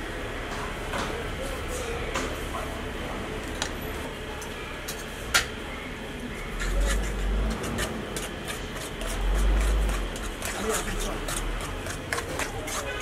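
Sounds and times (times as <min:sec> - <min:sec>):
utensil scraping aluminium pot: 0:06.6 - 0:13.0.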